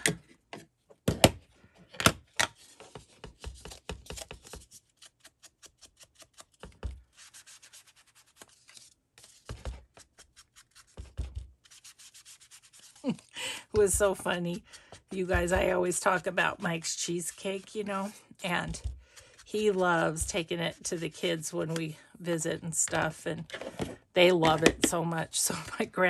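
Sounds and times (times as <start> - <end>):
paper scratchy rubbing: 4.4 - 13.3, 13.9 - 18.2.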